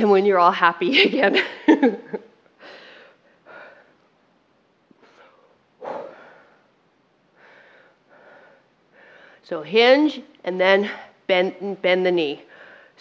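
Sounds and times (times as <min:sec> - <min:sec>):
woman breathing hard: 0:02.6 - 0:04.2, 0:05.0 - 0:09.4, 0:12.5 - 0:13.0.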